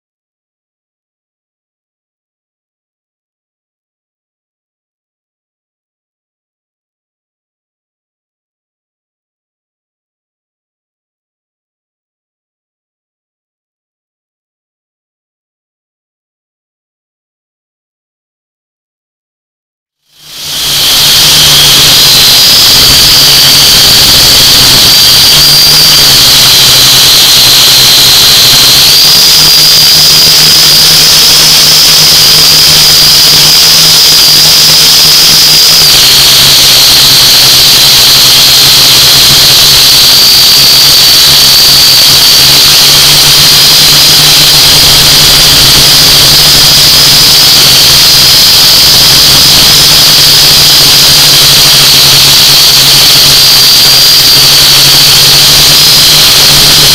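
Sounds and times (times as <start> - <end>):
drone motors whining: 20.3 - 51.4.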